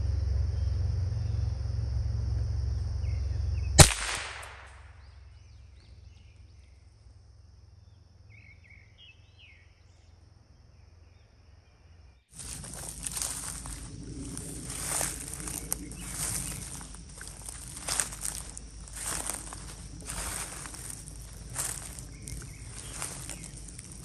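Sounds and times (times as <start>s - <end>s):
low rumble: 0.0s - 3.8s, 12.4s - 24.0s
insect drone: 0.0s - 24.0s
rifle shot: 3.8s - 5.0s
faint bird chirps: 7.8s - 12.3s.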